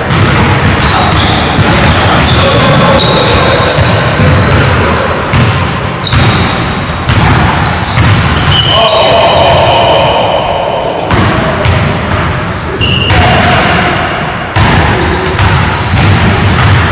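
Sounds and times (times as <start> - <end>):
basketball bouncing: 0.0 - 8.7, 11.0 - 12.5, 14.6 - 16.9
sneakers squeaking: 0.0 - 9.9, 10.8 - 13.3, 15.0 - 16.9
players' voices: 0.0 - 16.9.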